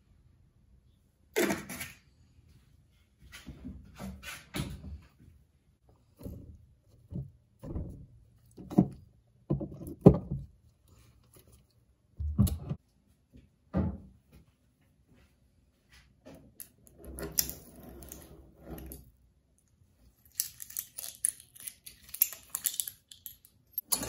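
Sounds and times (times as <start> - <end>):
objects knocking and thunking: 6.0 - 10.6.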